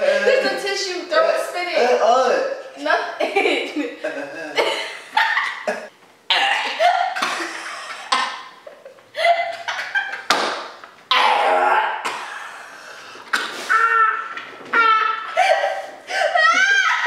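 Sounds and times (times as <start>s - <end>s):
man and woman laughing: 3.8s - 5.9s, 6.8s - 10.3s, 14.7s - 17.0s
people coughing: 5.8s - 8.4s.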